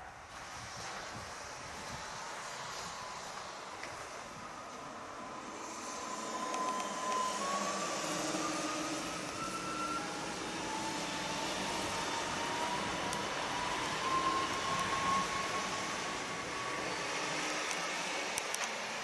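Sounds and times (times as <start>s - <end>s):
electric train traction whine: 0.0s - 19.0s
rushing noise of moving train: 0.0s - 19.0s.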